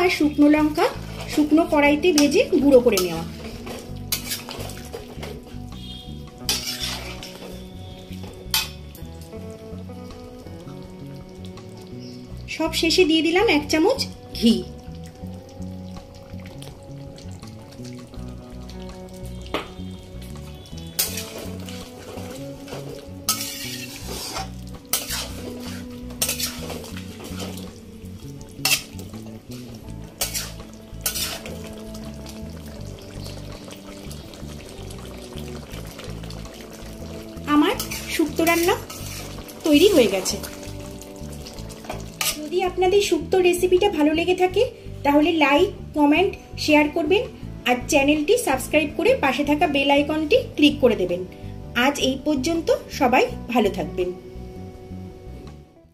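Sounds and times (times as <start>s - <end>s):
background music: 0.0s - 55.9s
metal spatula scraping a pan: 0.6s - 7.8s, 8.4s - 8.8s, 20.8s - 27.8s, 28.6s - 32.1s, 36.2s - 42.6s.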